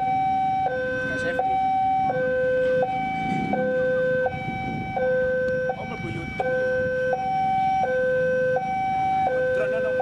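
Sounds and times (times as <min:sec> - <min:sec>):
level crossing alarm tones: 0:00.0 - 0:10.0
low rumble: 0:02.0 - 0:07.1.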